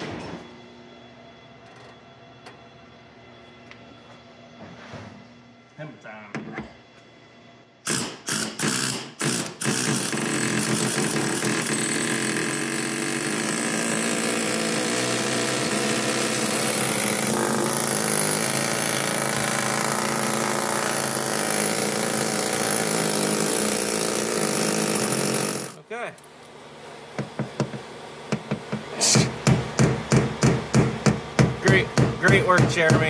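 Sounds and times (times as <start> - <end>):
air hammer hammering sheet steel: 7.8 - 25.8, 28.4 - 33.0.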